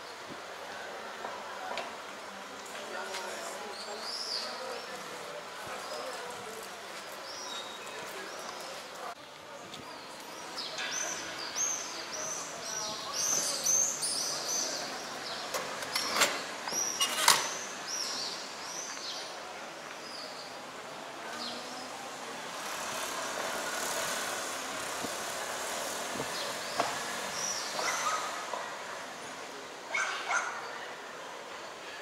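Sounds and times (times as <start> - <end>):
traffic hum: 0.0 - 32.0
vehicle passing: 21.4 - 27.4.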